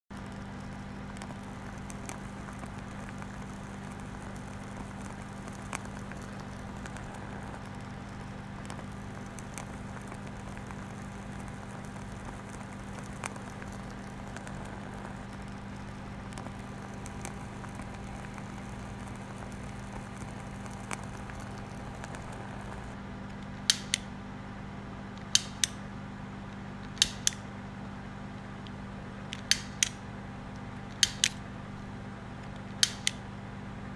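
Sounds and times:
low hum: 0:00.1 - 0:33.9
faint ticks: 0:00.2 - 0:23.0
sharp paired clicks: 0:00.2 - 0:24.1, 0:25.2 - 0:25.8, 0:26.9 - 0:27.4, 0:29.3 - 0:30.0, 0:30.9 - 0:31.4, 0:32.6 - 0:33.2.

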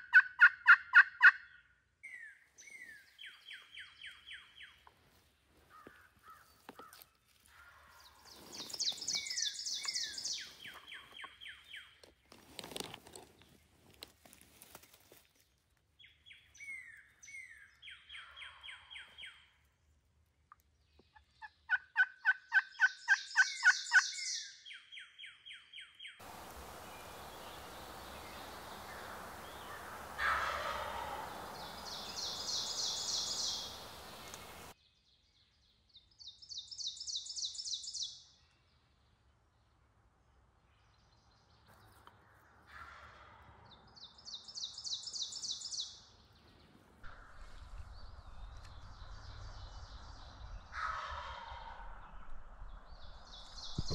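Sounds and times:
turkeys gobbling: 0:00.0 - 0:01.5, 0:21.7 - 0:24.0, 0:26.2 - 0:34.7, 0:50.8 - 0:52.0
steady hiss: 0:26.2 - 0:34.7.

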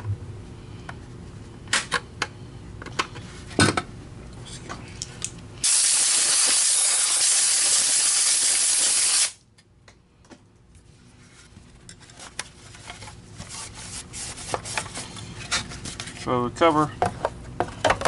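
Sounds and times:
air hissing: 0:05.6 - 0:09.4.

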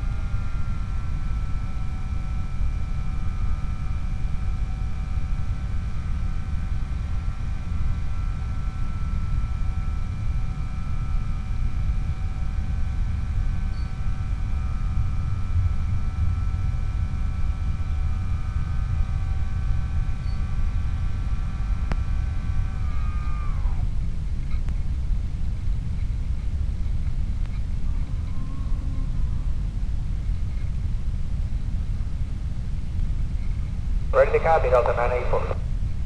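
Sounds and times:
electric motor and propeller whining: 0:20.3 - 0:24.0.

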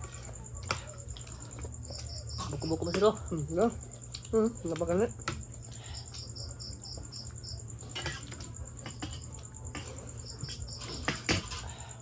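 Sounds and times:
crickets trilling: 0:00.0 - 0:12.0
high insect chirps: 0:01.0 - 0:11.8
cutlery clinking on plates: 0:07.8 - 0:11.8.

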